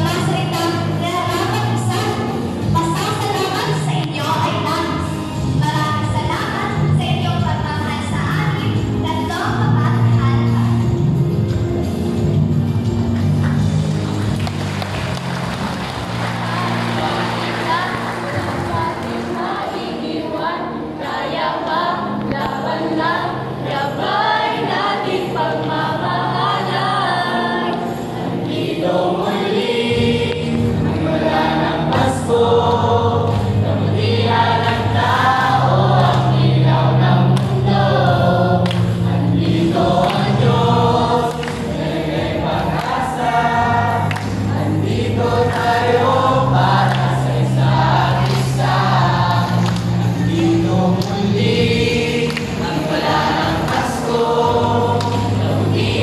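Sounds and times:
youth choir singing: 14.3s - 56.0s.

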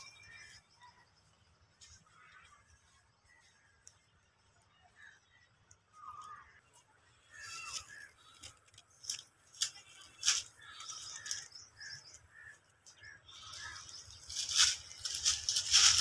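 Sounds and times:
birds chirping: 0.0s - 16.0s
donkey hooves crunching: 5.6s - 16.0s
footsteps in dry leaves: 7.3s - 16.0s.

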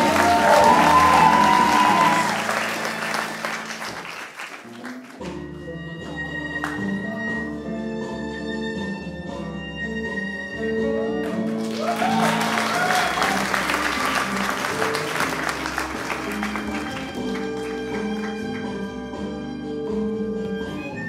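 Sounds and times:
audience cheering: 0.0s - 5.0s, 11.6s - 17.3s
audience applause: 0.0s - 5.3s, 11.4s - 18.8s
stage music with held notes: 0.0s - 21.0s.

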